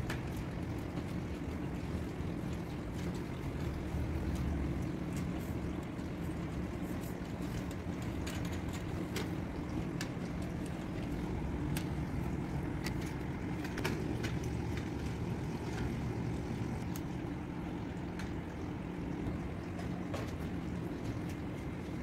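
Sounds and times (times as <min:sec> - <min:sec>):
steady low rumble: 0:00.0 - 0:22.0
pool brush scrubbing: 0:02.8 - 0:13.8.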